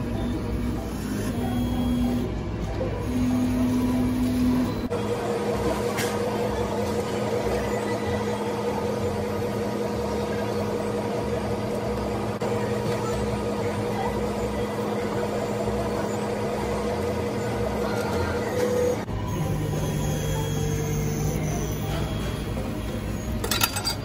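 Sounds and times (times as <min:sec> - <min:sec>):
engraving machine humming: 0:00.0 - 0:02.3, 0:03.0 - 0:05.4, 0:14.4 - 0:23.4.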